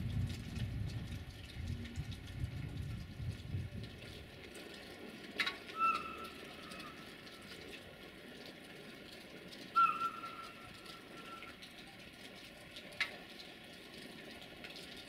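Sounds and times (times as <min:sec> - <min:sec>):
locomotive whistle blasts: 0:05.8 - 0:07.0, 0:09.8 - 0:11.6.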